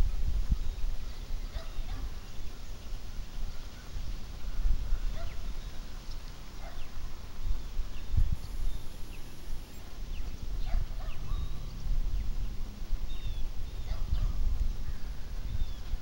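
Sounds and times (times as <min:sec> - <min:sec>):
wind buffeting microphone: 0:00.0 - 0:16.0
bird chirps: 0:08.4 - 0:16.0.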